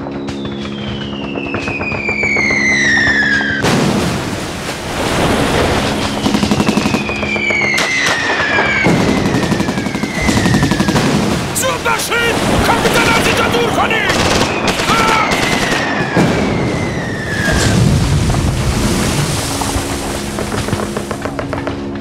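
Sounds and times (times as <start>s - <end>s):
explosions: 0.0s - 22.0s
shells whistling down: 6.0s - 11.0s, 14.1s - 17.5s
rapid gunfire: 6.2s - 16.2s.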